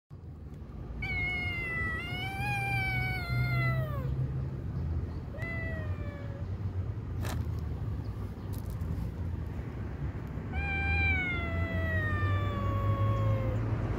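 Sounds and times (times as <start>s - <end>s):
kitten crying: 1.0s - 4.2s, 5.3s - 6.6s, 10.5s - 13.7s.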